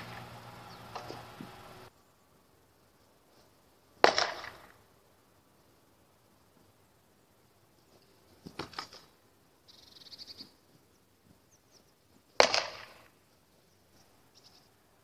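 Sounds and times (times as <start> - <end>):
wooden sword striking wood: 4.0 - 4.7.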